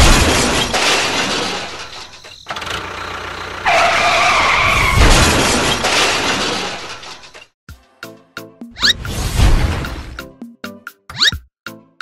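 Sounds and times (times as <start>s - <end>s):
toy train crash with shattering: 0.0s - 2.7s, 4.4s - 7.5s.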